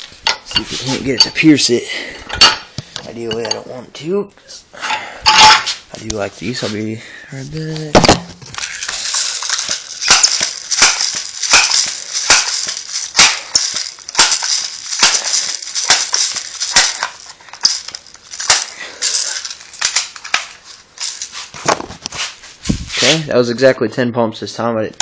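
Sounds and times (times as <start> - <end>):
air gun pump clacks: 8.6 - 22.4.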